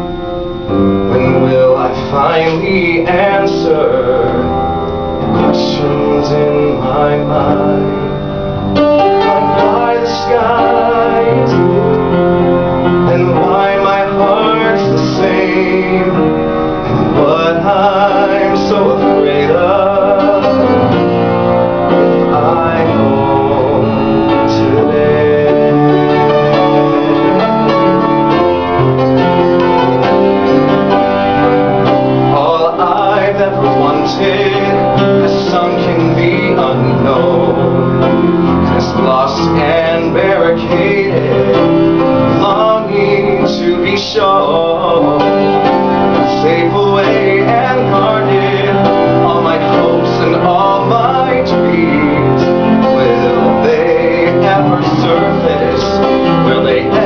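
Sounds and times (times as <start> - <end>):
upright piano: 0.0 - 57.0
man singing a slow ballad: 1.1 - 8.2, 9.0 - 12.2, 12.8 - 21.2, 21.9 - 27.7, 32.3 - 57.0.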